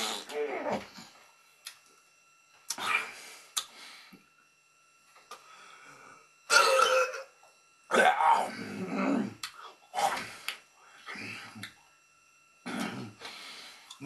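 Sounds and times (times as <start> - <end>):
man making gross throat noises: 2.7 - 3.7, 6.5 - 7.3, 12.6 - 13.3
mouth click: 3.5 - 3.7, 9.4 - 9.6.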